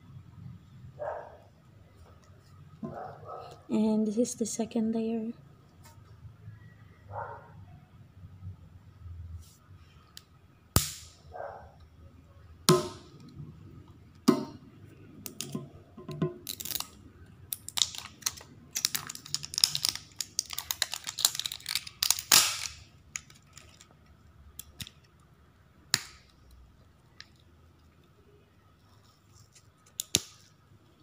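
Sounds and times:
plastic foil wrapper crinkling: 16.5 - 23.9.

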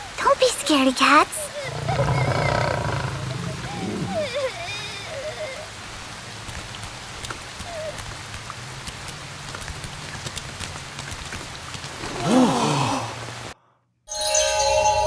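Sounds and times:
rain falling on pavement: 0.0 - 13.6
raindrops ticking: 0.2 - 12.1.

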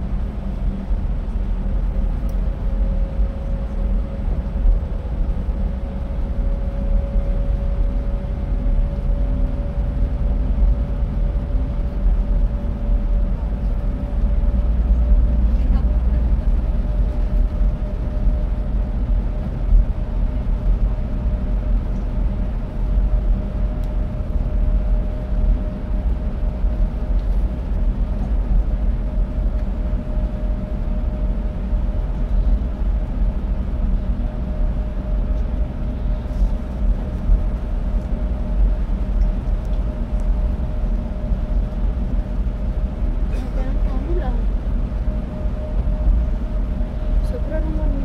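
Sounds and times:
bus engine and tyre rumble: 0.0 - 48.0
steady mid-pitched hum: 0.0 - 48.0.

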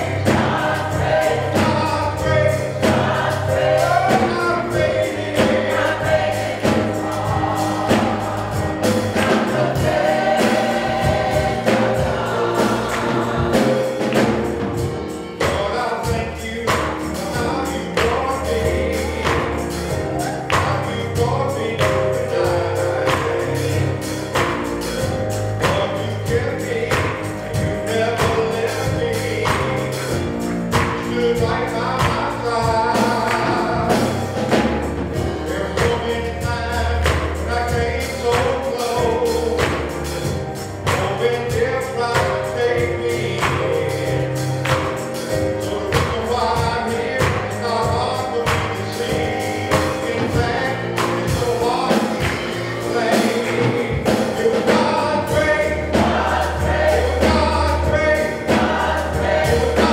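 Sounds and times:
gospel choir singing: 0.0 - 59.9
steady percussive beat: 0.0 - 59.9.

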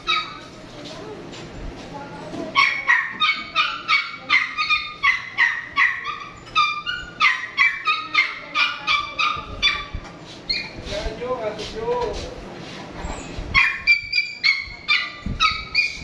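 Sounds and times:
small dog yapping: 0.0 - 0.5, 2.6 - 10.8, 13.5 - 16.0.

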